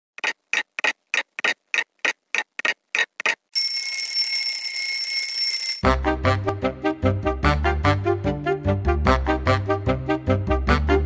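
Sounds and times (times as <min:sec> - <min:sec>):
alarm clock ticking: 0:00.2 - 0:05.8
alarm clock bell ringing: 0:03.6 - 0:05.8
music: 0:05.8 - 0:11.0.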